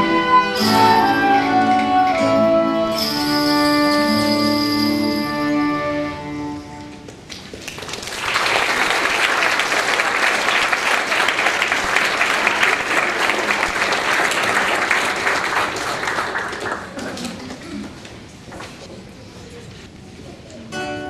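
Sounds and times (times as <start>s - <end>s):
violins and clarinet chord: 0.0s - 7.0s
audience applause: 7.3s - 18.0s.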